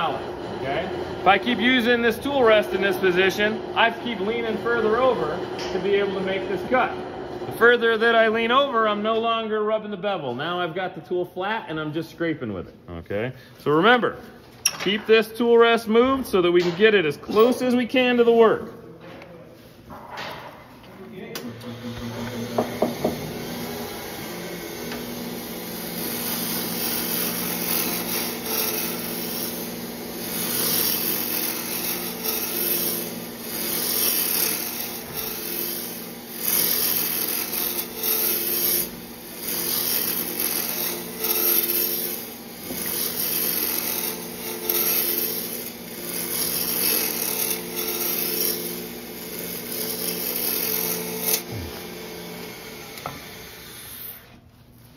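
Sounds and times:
gouge cutting spinning wood: 0.0 - 8.5, 21.6 - 54.4
lathe humming: 0.0 - 9.2, 21.1 - 54.5.

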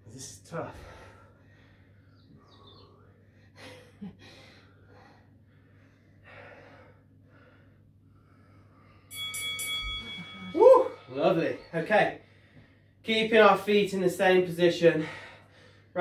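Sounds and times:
heavy breathing: 0.5 - 9.2, 14.8 - 16.0.

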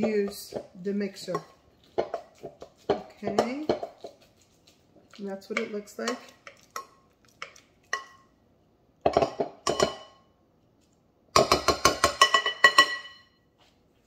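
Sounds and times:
utensil clinking on ceramic bowl: 11.4 - 13.3.

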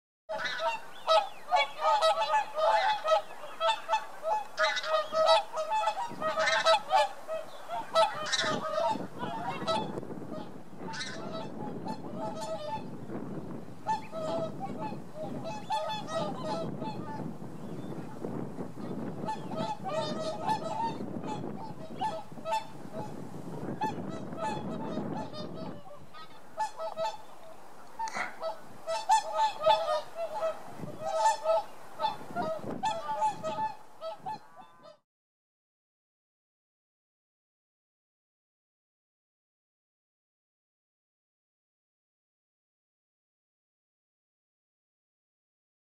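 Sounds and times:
swans honking: 0.3 - 35.0.

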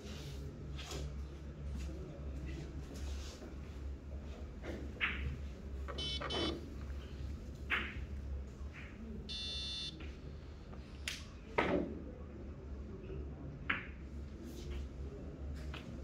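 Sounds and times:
low steady hum: 5.5 - 11.2
short electronic beep: 6.0 - 6.5, 9.3 - 9.9.

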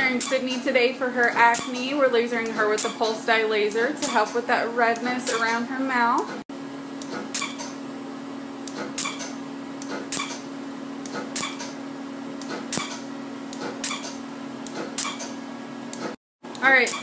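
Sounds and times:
laser snapping pops: 2.8 - 3.1, 4.0 - 4.4, 5.2 - 5.6, 7.0 - 7.8, 8.7 - 11.8, 12.4 - 15.4.

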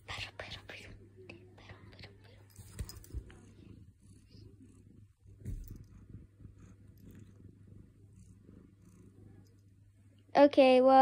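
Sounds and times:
cat purring: 0.0 - 10.3
soft thump: 5.4 - 6.0.

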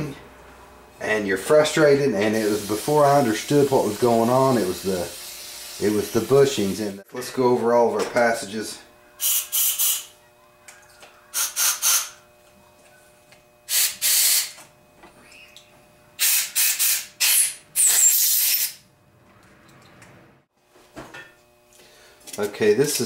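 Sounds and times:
air blow gun hissing blasts: 2.3 - 6.9, 9.2 - 10.1, 11.3 - 12.2, 13.7 - 14.6, 16.2 - 18.8.

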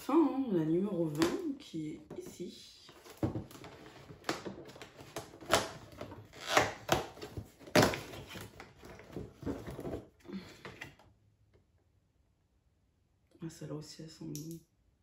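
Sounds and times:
cardboard crackling and tearing: 3.5 - 10.0.

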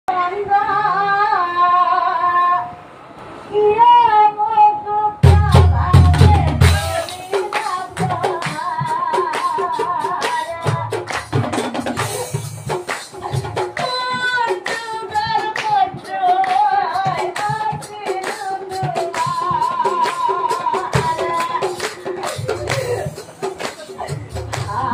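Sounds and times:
woman singing: 0.1 - 2.8, 3.5 - 11.3, 13.2 - 24.9
deep drums and percussion: 5.2 - 24.9.

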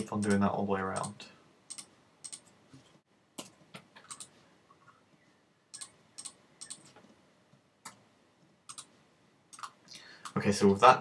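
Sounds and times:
keyboard and mouse clicks: 0.0 - 2.6, 3.4 - 4.4, 5.7 - 7.2, 7.8 - 8.0, 8.6 - 10.4.

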